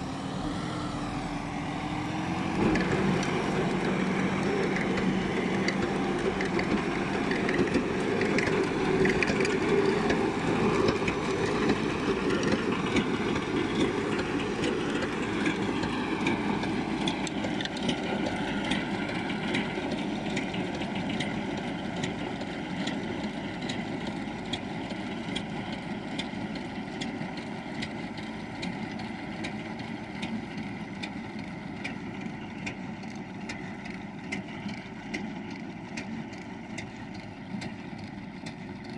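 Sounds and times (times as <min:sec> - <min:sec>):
tractor diesel engine running: 0:00.0 - 0:38.9
spreader clattering and ticking: 0:02.6 - 0:38.9.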